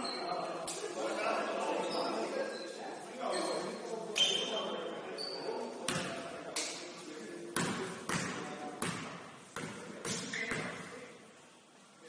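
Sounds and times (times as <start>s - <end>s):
basketball bouncing on gym floor: 7.6s - 10.9s.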